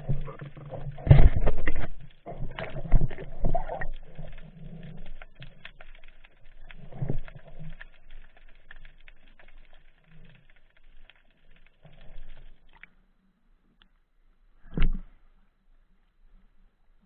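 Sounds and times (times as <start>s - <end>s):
underwater clicks and crackles: 0.0s - 16.4s.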